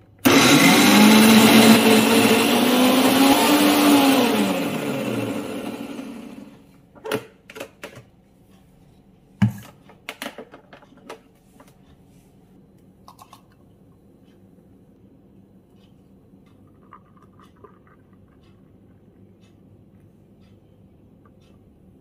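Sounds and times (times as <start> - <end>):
blender motor spinning down: 0.2 - 6.6.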